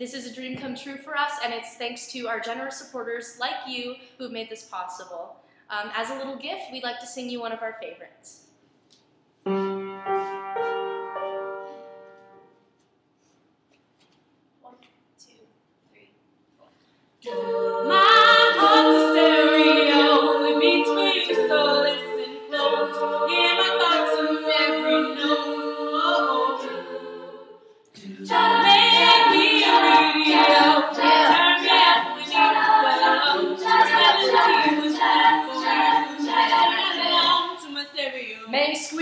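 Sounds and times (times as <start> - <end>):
women singing a cappella harmony: 17.2 - 39.0.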